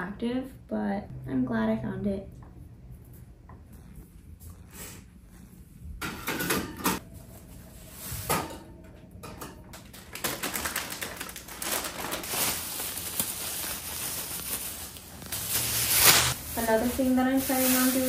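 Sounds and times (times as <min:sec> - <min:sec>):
rustling: 0:10.3 - 0:18.0.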